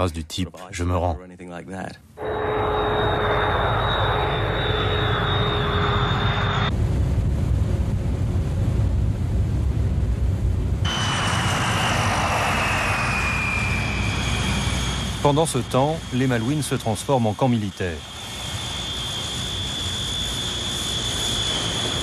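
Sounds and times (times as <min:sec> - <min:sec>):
jet engines with turbine whine: 0:02.2 - 0:22.0.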